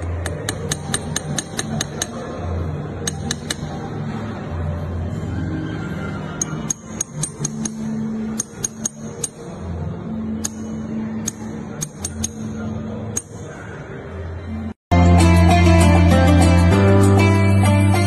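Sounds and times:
hammer tapping on brass: 0.2 - 2.2.

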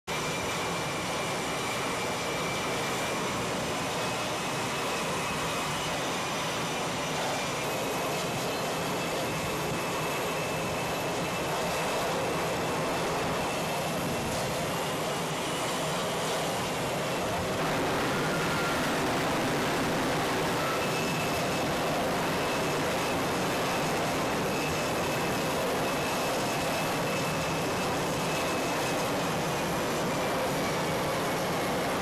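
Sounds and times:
jet engines rushing: 0.1 - 32.0
faint high whine: 0.2 - 32.0.

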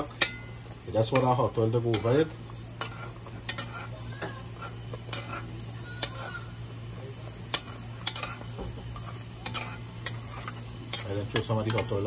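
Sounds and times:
dough sizzling in hot oil: 0.0 - 12.0
metal spoon clicking on pan: 0.2 - 0.5, 1.1 - 2.2, 2.8 - 3.8, 5.1 - 5.4, 6.0 - 6.3, 7.5 - 8.4, 9.4 - 12.0.

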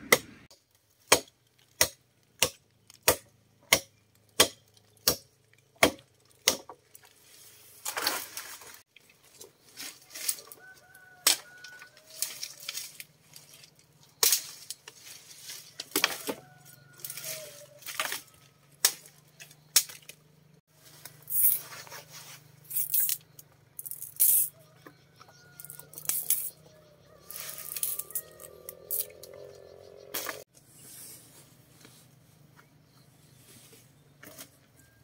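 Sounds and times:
wooden pieces clattering: 25.6 - 26.5.

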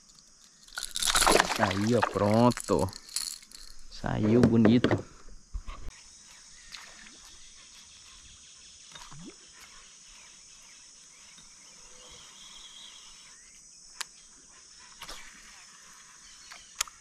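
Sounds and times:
insects buzzing: 0.0 - 17.0.

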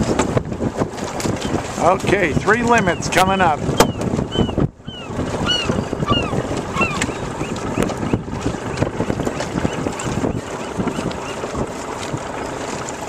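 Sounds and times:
line hauled over boat side: 0.0 - 13.0
wind buffeting microphone: 0.0 - 13.0
honking bird calls: 3.8 - 11.5.

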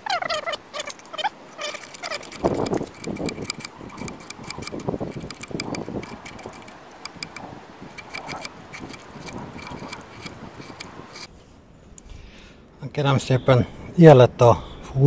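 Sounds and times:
knife whittling a stick: 0.3 - 11.3.

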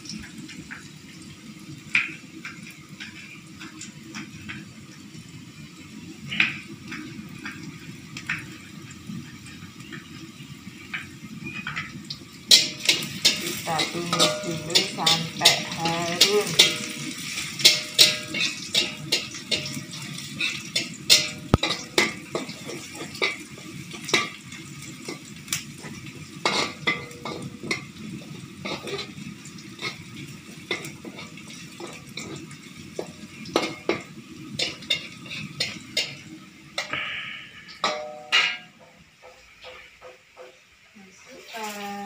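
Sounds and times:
frying sizzle: 0.0 - 42.0
metal spatula scraping a wok: 11.4 - 40.5.

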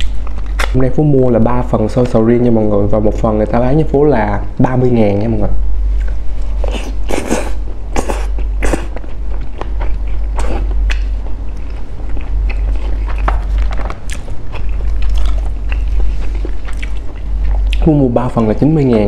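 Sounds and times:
wet chewing mouth sounds: 6.0 - 19.0.

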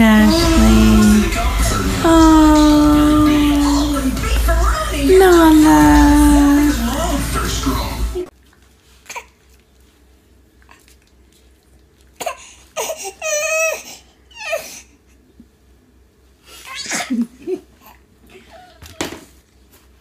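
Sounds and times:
baby vocalising: 0.0 - 7.2.

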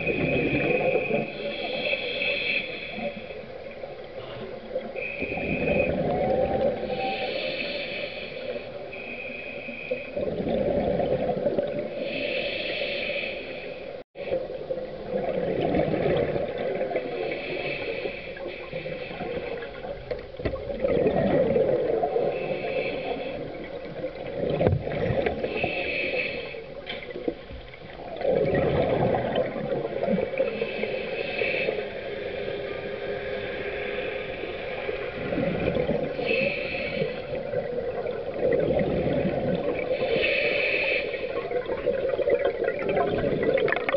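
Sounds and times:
diver breathing through regulator: 0.0 - 3.5, 4.2 - 10.5, 11.9 - 14.0, 17.0 - 19.9, 22.1 - 23.8, 25.1 - 27.0, 30.3 - 38.1, 39.8 - 41.8.

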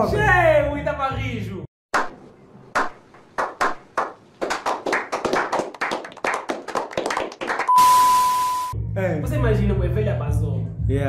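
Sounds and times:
sharp hand claps: 2.0 - 7.7.

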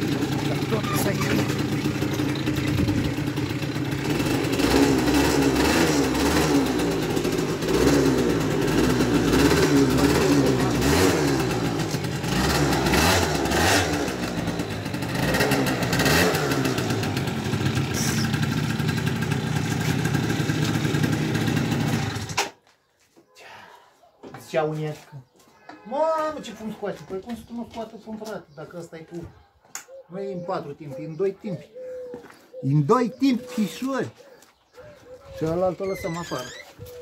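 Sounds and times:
scooter engine running: 0.0 - 22.4.

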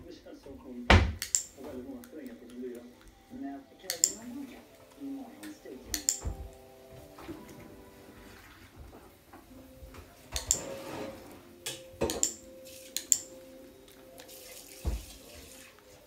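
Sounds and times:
sharp clicks: 1.2 - 3.2, 3.9 - 4.2, 5.4 - 6.5, 13.0 - 13.3.

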